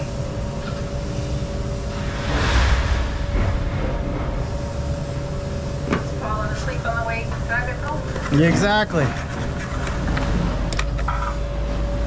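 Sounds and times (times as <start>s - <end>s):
steady hum: 0.0s - 12.0s
brief rush of noise: 1.9s - 5.2s.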